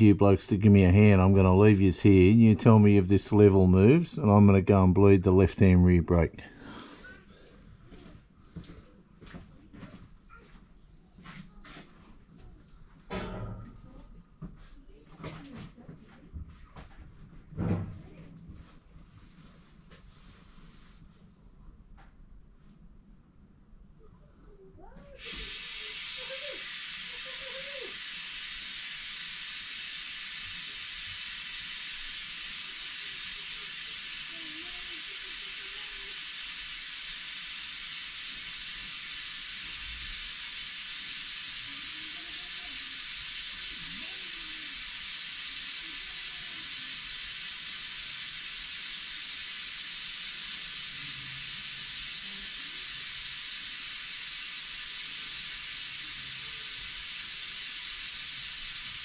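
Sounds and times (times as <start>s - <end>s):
compressed air hissing: 25.2s - 59.0s.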